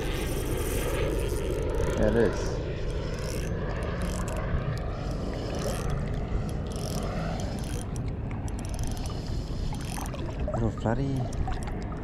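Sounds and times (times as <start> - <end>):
boat rumble: 0.0 - 12.0
water noise: 0.0 - 12.0.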